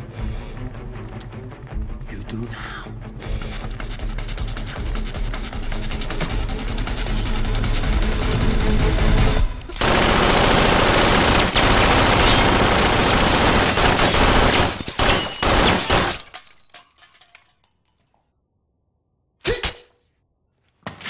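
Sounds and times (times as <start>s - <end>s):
automatic gunfire: 9.8s - 16.2s
debris tinkling and clattering: 12.0s - 18.3s.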